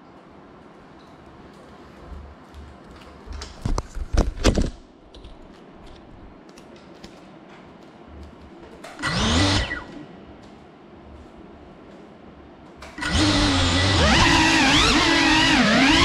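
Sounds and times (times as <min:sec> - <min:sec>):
drone motors revving: 0:09.0 - 0:09.9, 0:13.0 - 0:16.0.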